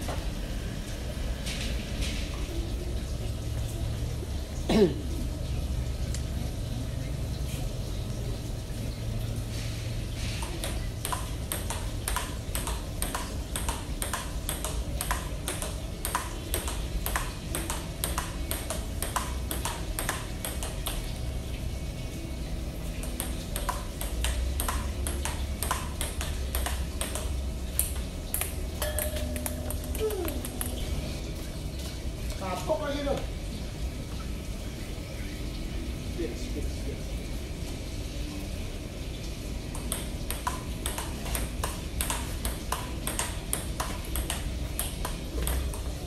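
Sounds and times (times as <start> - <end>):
table tennis ball clicking: 10.4 - 21.2, 23.0 - 30.8, 39.7 - 46.0.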